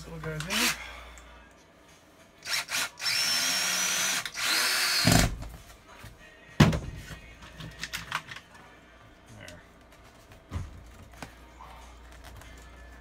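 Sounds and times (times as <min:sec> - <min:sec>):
cordless drill motor whine: 0:02.5 - 0:05.0.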